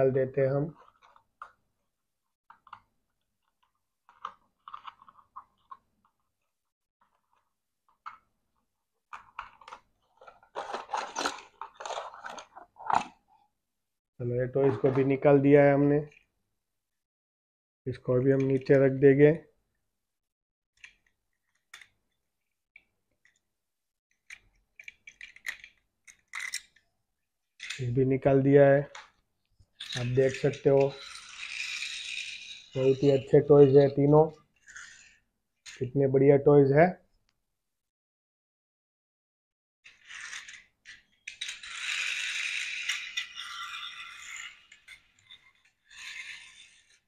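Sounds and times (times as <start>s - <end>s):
toy friction motors whirring: 29.8s - 33.4s, 39.9s - 47.0s.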